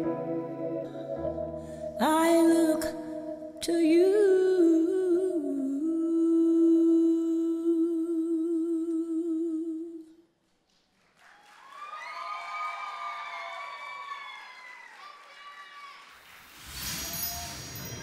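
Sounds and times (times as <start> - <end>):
woman singing with vibrato: 1.9 - 10.2
audience cheering and applauding: 11.1 - 17.8.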